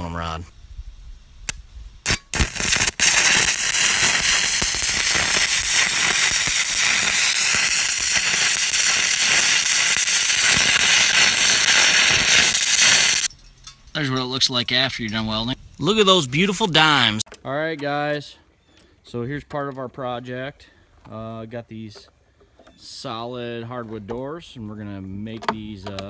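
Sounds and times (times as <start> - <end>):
welding arc frying crackle: 1.4 - 13.3.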